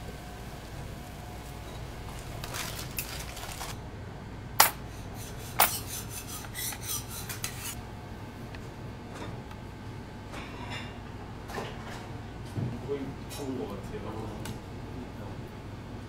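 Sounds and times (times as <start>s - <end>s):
spoon scraping plate: 5.2s - 7.8s.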